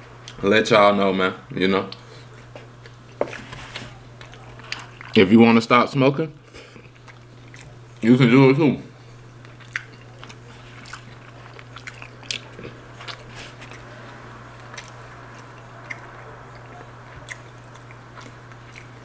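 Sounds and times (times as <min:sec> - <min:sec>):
steady low hum: 0:00.0 - 0:19.0
person chewing food: 0:01.9 - 0:05.2, 0:06.4 - 0:08.0, 0:09.0 - 0:19.0.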